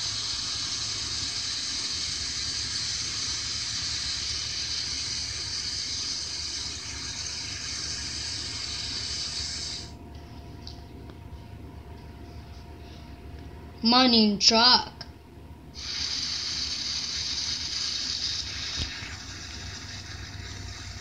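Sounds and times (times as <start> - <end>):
steady hiss: 0.0 - 10.0, 15.8 - 21.0.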